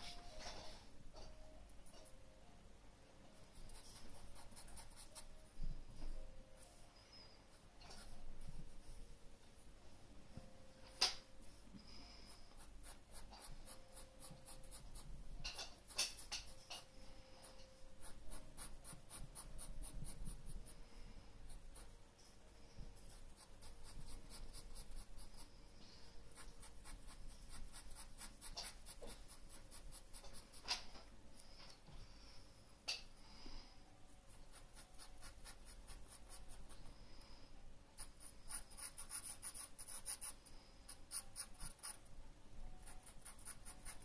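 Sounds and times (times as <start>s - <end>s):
pencil scratching on paper: 3.6s - 5.3s, 12.3s - 16.6s, 17.4s - 20.8s, 23.0s - 25.6s, 26.3s - 30.8s, 34.3s - 36.9s, 38.0s - 42.1s, 42.8s - 44.0s.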